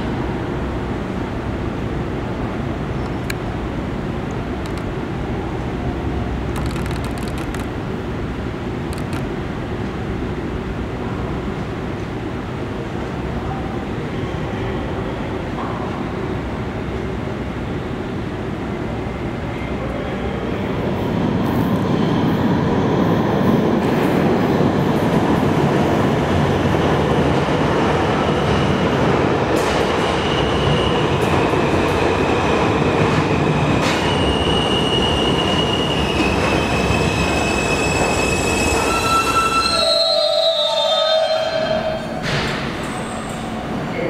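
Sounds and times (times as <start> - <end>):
subway train rumbling: 0.0 - 44.0
sharp clicks: 6.5 - 7.7, 8.9 - 9.3
steel wheels squealing on rails: 29.6 - 43.7.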